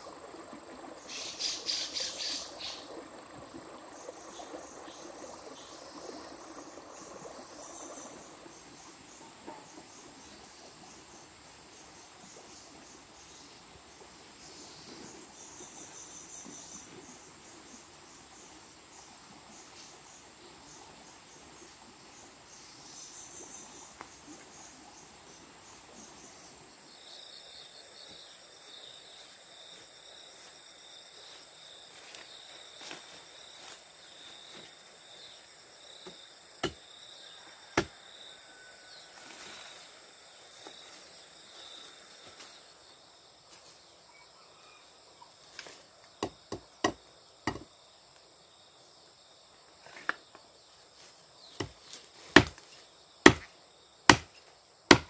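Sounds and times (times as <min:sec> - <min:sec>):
insects chirring: 0:00.0 - 0:55.0
blade chopping bamboo: 0:51.6 - 0:52.6, 0:53.2 - 0:53.5, 0:54.1 - 0:55.0.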